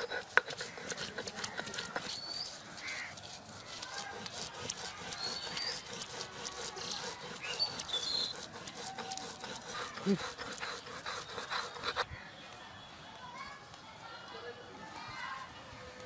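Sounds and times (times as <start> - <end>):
stone roller grinding on stone slab: 0.0 - 12.1.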